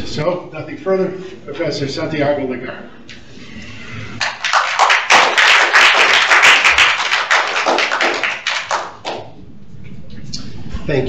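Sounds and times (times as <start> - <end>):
audience applauding: 4.2 - 9.3.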